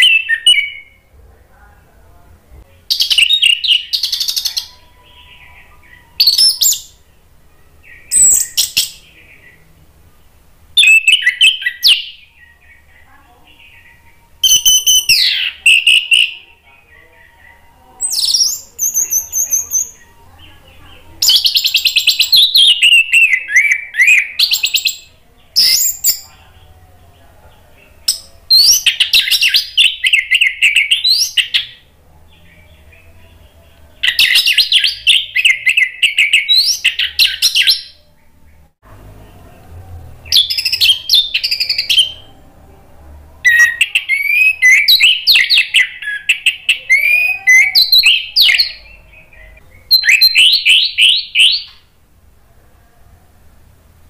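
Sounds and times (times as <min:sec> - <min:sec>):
thrush whistling song: 0:10.8 - 0:12.9, 0:13.6 - 0:16.4, 0:43.5 - 0:51.8.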